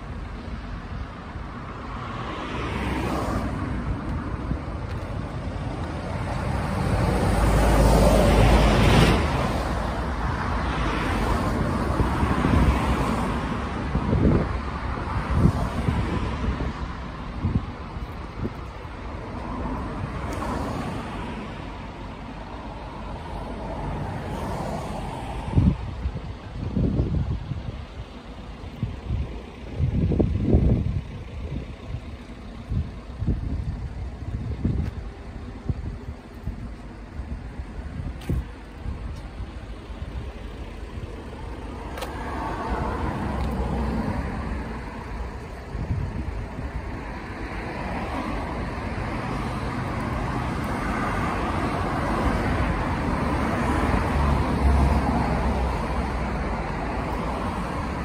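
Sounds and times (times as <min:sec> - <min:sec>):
road traffic passing: 0:00.0 - 0:58.0
wind buffeting microphone: 0:11.5 - 0:20.1, 0:25.4 - 0:58.0.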